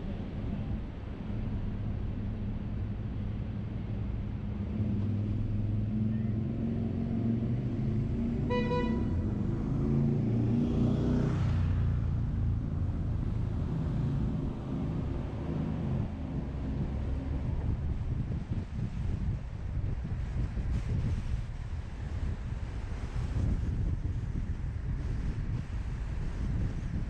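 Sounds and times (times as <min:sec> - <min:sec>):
car engine and road noise: 0:00.0 - 0:27.0
vehicle passing close by: 0:04.6 - 0:17.8
car horn toot: 0:08.5 - 0:09.2.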